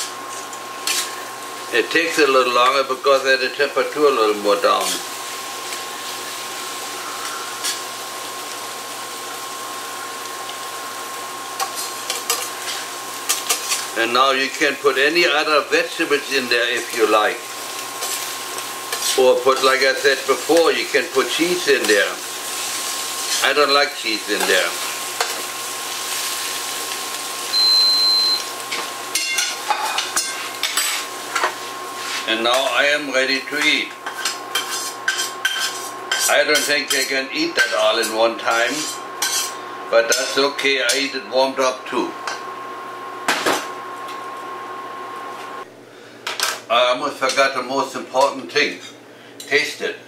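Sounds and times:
food sizzling in a frying pan: 0:00.0 - 0:45.7
high electronic beep: 0:27.5 - 0:28.4
spatula clinking on metal: 0:28.7 - 0:31.5.

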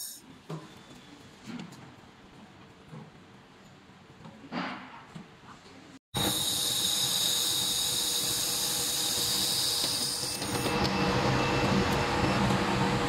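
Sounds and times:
laser welder hiss and whine: 0:06.2 - 0:13.0.

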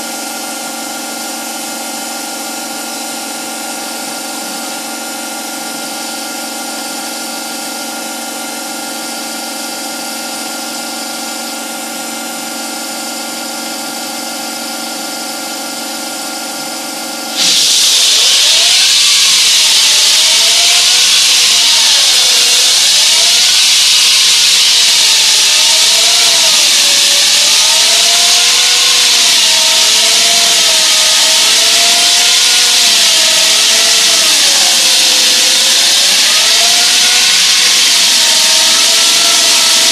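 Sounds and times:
saw blade grinding concrete: 0:17.4 - 0:39.9
wall saw humming: 0:17.4 - 0:39.9
wavering whine: 0:17.4 - 0:39.9.

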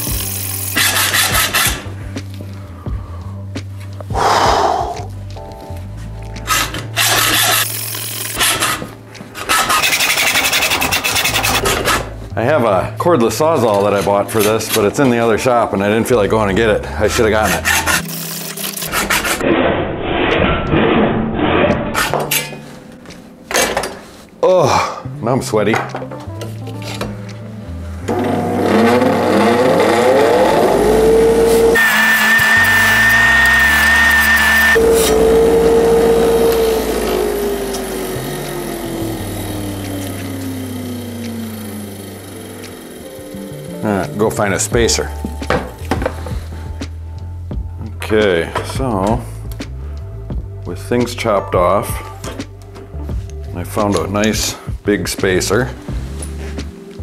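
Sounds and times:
hacksaw rasping through metal: 0:00.8 - 0:01.9, 0:06.5 - 0:07.7, 0:08.3 - 0:12.2, 0:17.2 - 0:19.4
hand saw blade squealing: 0:06.5 - 0:08.8, 0:09.4 - 0:12.1, 0:17.2 - 0:19.4, 0:31.8 - 0:35.2.

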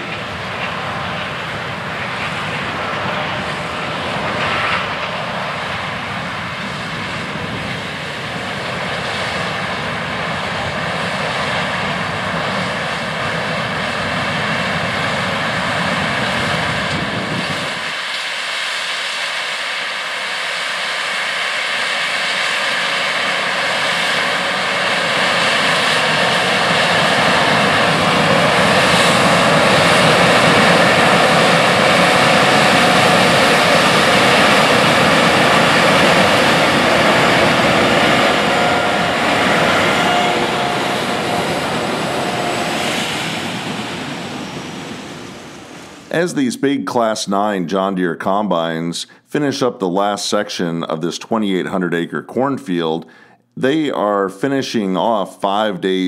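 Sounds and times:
combine harvester drone: 0:00.0 - 0:56.0
tractor driving up: 0:26.0 - 0:46.4.

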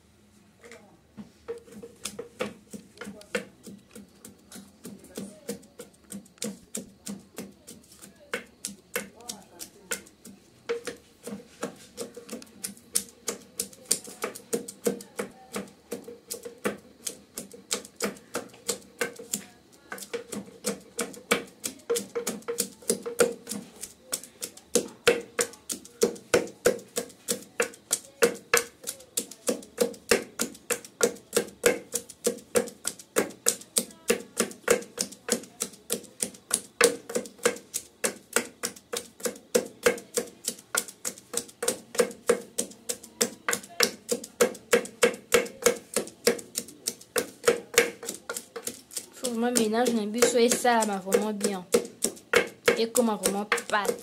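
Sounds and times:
pestle pounding in metal mortar: 0:01.5 - 0:54.0.

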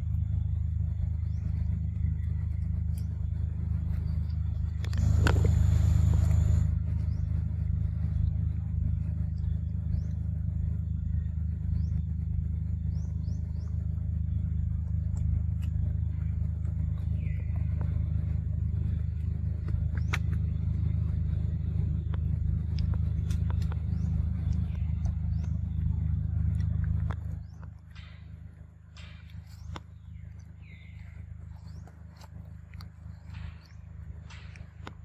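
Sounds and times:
low rumble with droning hum: 0:00.0 - 0:35.0
faint bird chirps: 0:00.1 - 0:34.8
small clicks: 0:22.0 - 0:35.0.

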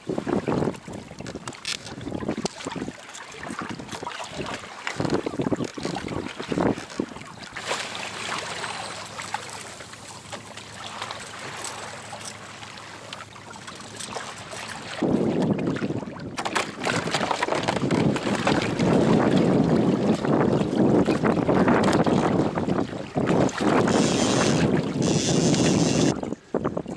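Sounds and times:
wind buffeting microphone: 0:00.0 - 0:07.3, 0:17.6 - 0:26.9
water splashing against hull: 0:00.0 - 0:26.9.

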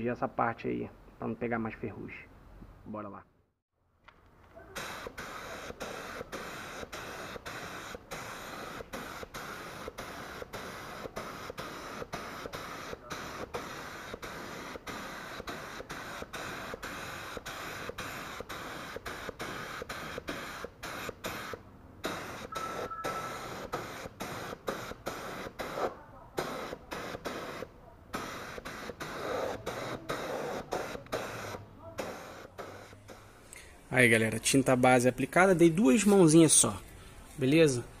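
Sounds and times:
spray gun hissing: 0:04.7 - 0:34.0.

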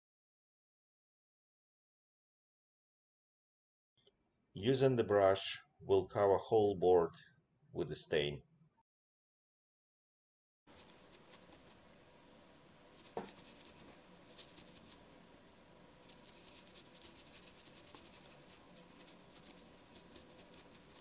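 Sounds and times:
bristle brush dabbing on wood: 0:10.7 - 0:12.0, 0:12.9 - 0:15.1, 0:16.0 - 0:21.0.

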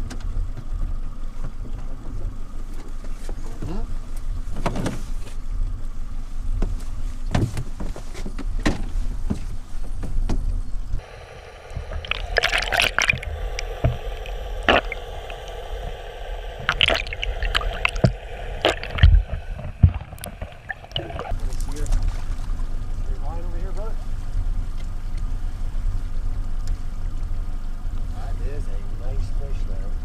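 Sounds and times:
low rumble on a boat: 0:00.0 - 0:30.0
muffled underwater gurgling: 0:11.0 - 0:22.0
underwater clicks and knocks: 0:11.7 - 0:21.7.

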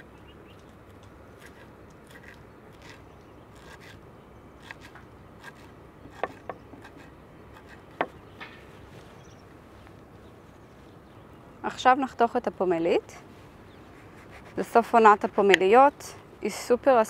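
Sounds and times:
knife chopping on wooden board: 0:05.5 - 0:06.9.

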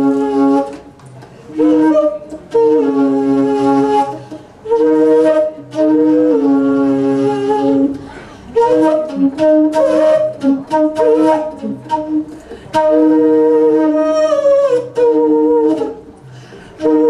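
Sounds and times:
flute: 0:00.0 - 0:17.0
saxophone: 0:00.0 - 0:17.0.

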